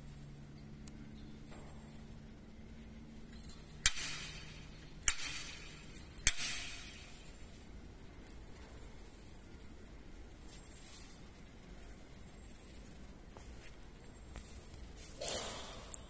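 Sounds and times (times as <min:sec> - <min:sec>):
ringing metallic clanks: 0:03.2 - 0:07.4.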